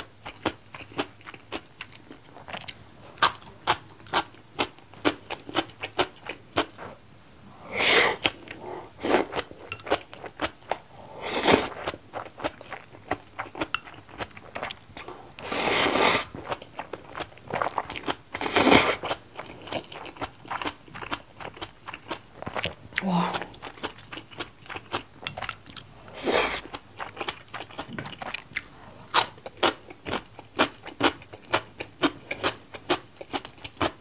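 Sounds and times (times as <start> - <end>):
wet chewing: 11.4 - 34.0
noodle slurping: 15.4 - 16.3.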